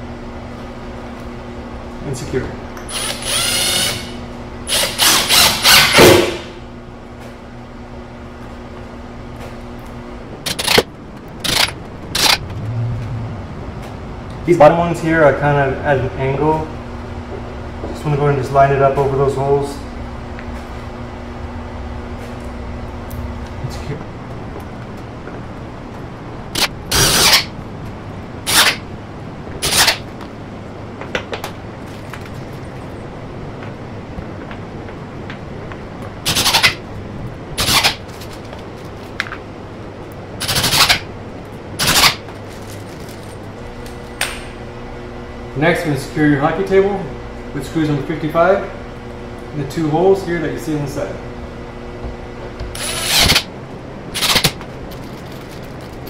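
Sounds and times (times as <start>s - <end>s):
cordless drill driving screw: 2.9s - 6.1s, 26.6s - 27.5s, 28.5s - 28.8s, 52.7s - 53.5s, 54.2s - 54.6s.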